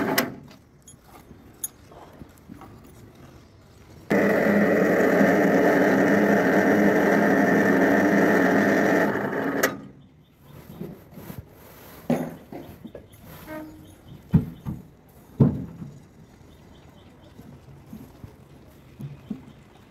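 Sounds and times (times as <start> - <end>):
hoist motor running: 4.1 - 9.9.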